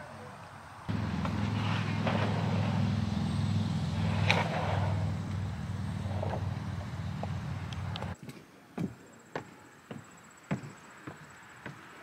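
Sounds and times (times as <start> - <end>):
truck engine rumbling: 0.8 - 8.2.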